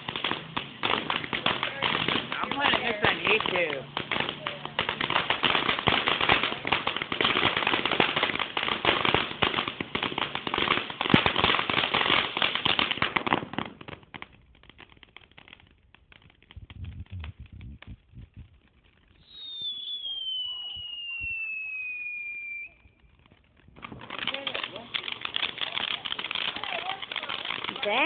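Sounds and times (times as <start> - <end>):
firework crackling: 0.0 - 28.0
high falling whistle: 19.2 - 22.9.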